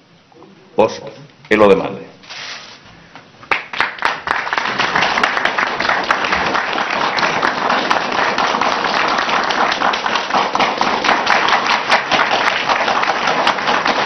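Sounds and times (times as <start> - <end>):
audience applause: 3.5 - 14.0.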